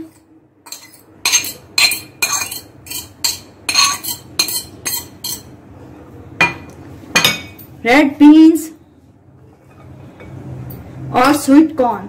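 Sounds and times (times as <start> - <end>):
fork scraping glass bowl: 0.0 - 5.5.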